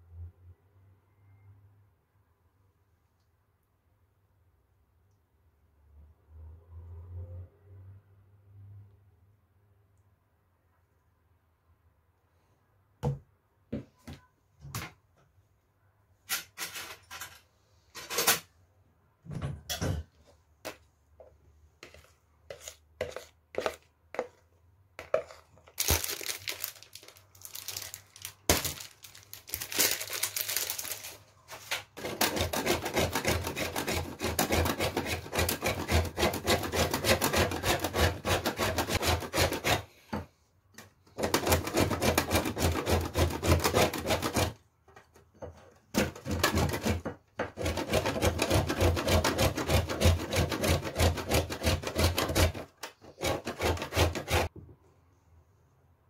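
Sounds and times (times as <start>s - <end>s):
kitchenware knocking and clattering: 19.3s - 20.2s
chocolate grated on metal grater: 21.8s - 24.4s, 25.0s - 26.0s, 32.0s - 40.2s, 41.1s - 44.6s, 45.9s - 54.5s
rustling: 25.0s - 32.0s.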